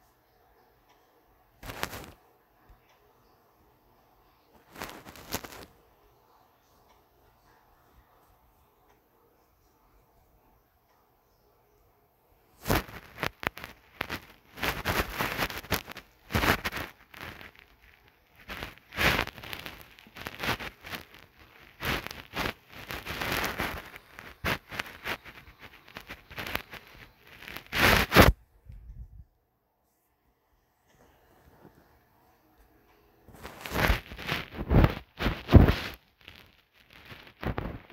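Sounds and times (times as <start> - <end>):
rustling and crackling: 1.6 - 2.2, 4.5 - 6.0, 12.5 - 29.2, 30.9 - 37.9.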